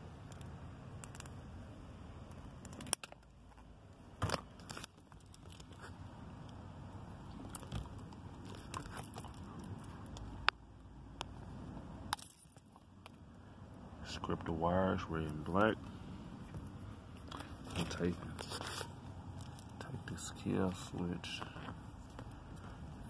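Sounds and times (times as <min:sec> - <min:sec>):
handling of wires and plastic: 0:16.5 - 0:20.0.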